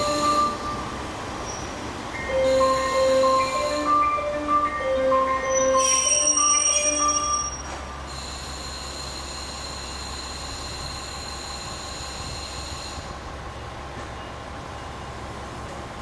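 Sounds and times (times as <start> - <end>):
diesel railcar engine idling: 0.0 - 16.0
high-pitched whine: 1.6 - 7.8
chime-like melody: 2.1 - 7.8.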